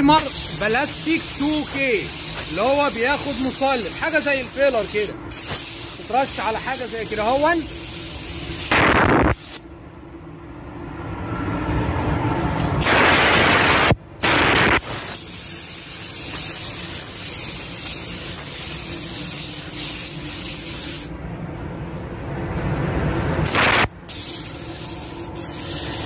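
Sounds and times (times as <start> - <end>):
spray gun hissing: 0.1 - 9.6, 12.8 - 21.1, 23.4 - 26.0.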